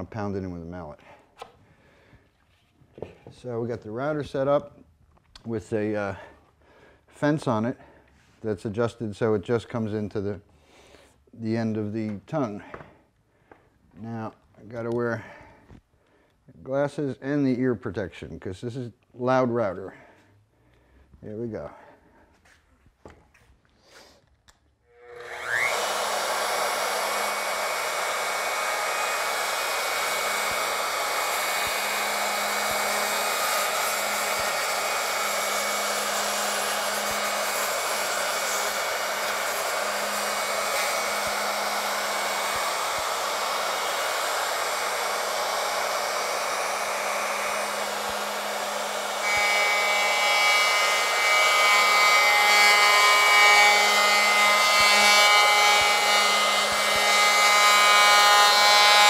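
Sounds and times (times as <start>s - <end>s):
electric router running: 24.9s - 59.0s.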